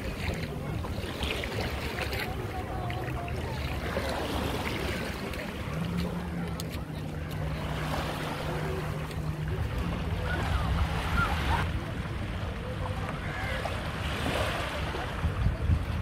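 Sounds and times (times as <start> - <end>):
small waves lapping: 0.0 - 16.0
wind buffeting microphone: 14.7 - 16.0.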